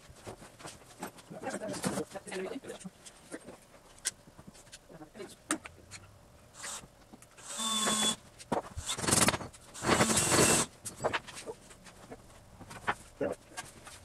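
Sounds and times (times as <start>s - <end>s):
power tool motor running: 6.6s - 8.2s, 8.8s - 10.7s.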